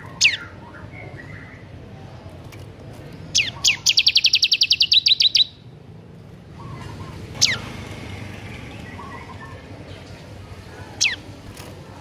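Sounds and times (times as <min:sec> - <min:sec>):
bird singing sweeping notes and trill: 0:00.0 - 0:01.8, 0:03.3 - 0:05.8, 0:06.4 - 0:10.1.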